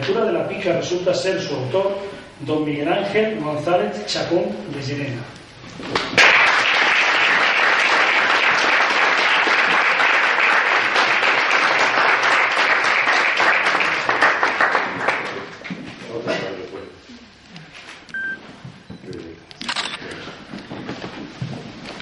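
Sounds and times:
audience applauding: 6.0 - 15.6.

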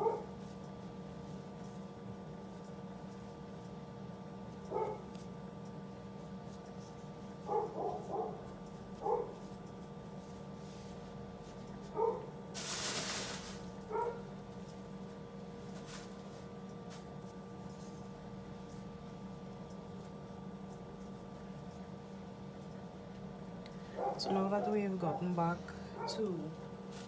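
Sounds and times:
dog barking: 0.0 - 0.3, 4.7 - 5.1, 7.4 - 8.4, 9.0 - 9.4, 12.0 - 12.3, 13.9 - 14.3, 24.0 - 25.3, 26.0 - 26.3
steady low hum: 0.0 - 27.0.

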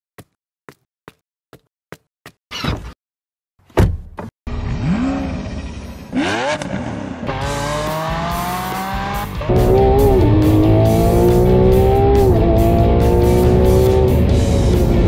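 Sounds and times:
car door clunk: 3.7 - 4.3
sports car engine revving: 4.5 - 15.0
music: 7.3 - 15.0.

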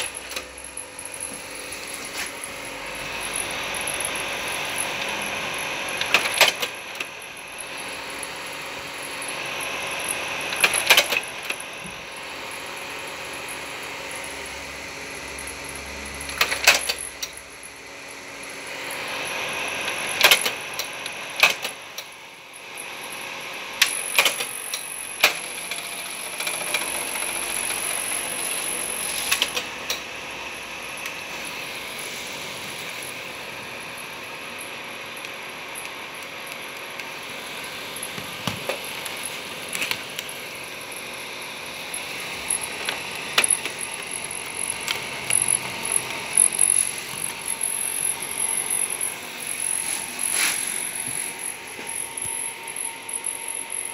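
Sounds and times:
steady projector hum: 0.0 - 53.9
slide projector clicking and clunking: 6.0 - 7.1, 10.6 - 11.6, 20.2 - 20.6, 21.4 - 21.8, 23.9 - 24.5.

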